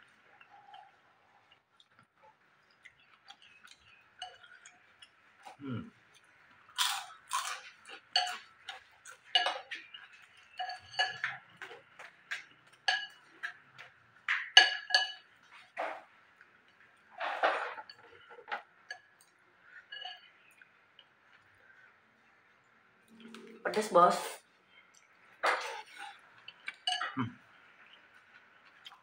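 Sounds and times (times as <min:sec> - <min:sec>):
chewing and crunching: 0:00.0 - 0:21.8, 0:24.7 - 0:29.0
utensils clinking on ceramic bowl: 0:06.8 - 0:16.1, 0:17.2 - 0:20.6, 0:25.4 - 0:27.9.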